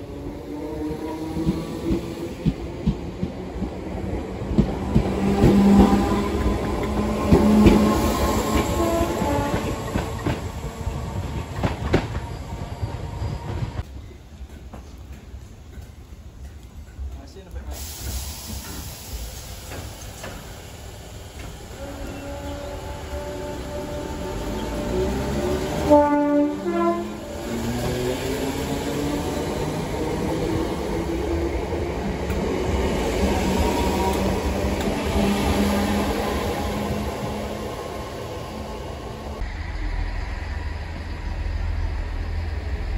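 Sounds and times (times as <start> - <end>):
electric train passing: 0.0 - 42.9
train horn: 8.6 - 9.8, 21.7 - 27.3.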